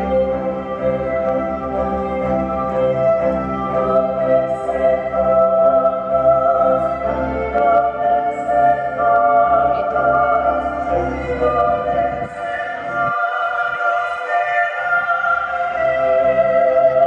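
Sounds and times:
slow music of long held notes: 0.0s - 17.0s.

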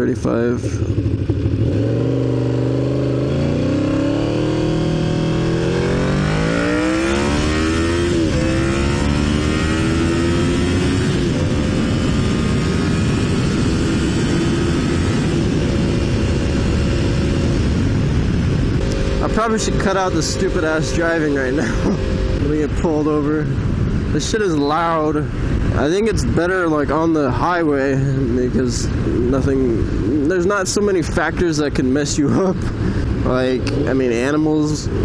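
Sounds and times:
motorcycle engine accelerating: 0.0s - 24.4s
wind noise on microphone: 0.0s - 35.0s.

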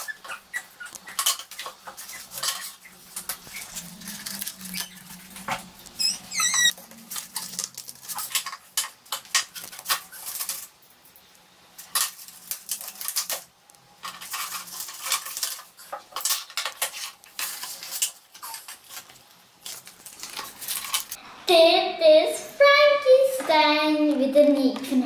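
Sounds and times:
toy packaging clicks and rustles: 0.8s - 11.2s, 11.8s - 21.2s
short squeak: 5.9s - 6.8s.

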